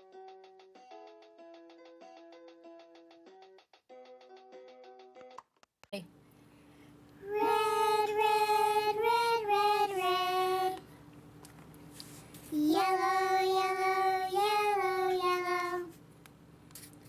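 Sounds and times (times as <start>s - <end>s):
child singing: 7.2s - 10.9s, 12.5s - 15.9s.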